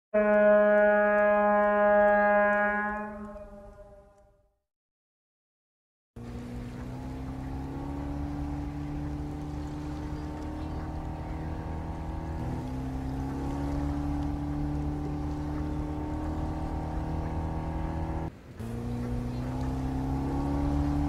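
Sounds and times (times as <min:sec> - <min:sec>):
boat engine droning: 0:00.1 - 0:04.3, 0:06.2 - 0:21.0
water rushing: 0:06.2 - 0:21.0.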